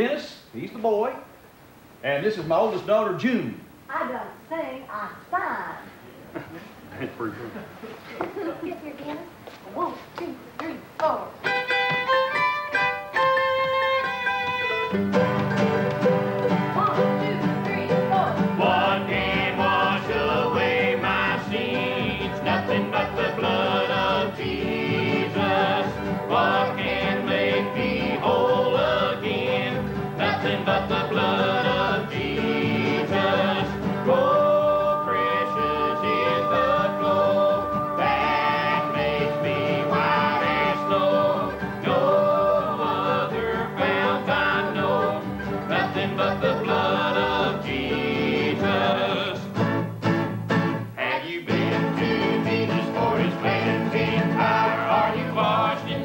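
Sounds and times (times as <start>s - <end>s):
acoustic guitar: 2.1s - 56.0s
mandolin: 11.4s - 56.0s
upright bass: 11.5s - 56.0s
group singing in harmony: 15.0s - 49.9s, 51.0s - 56.0s.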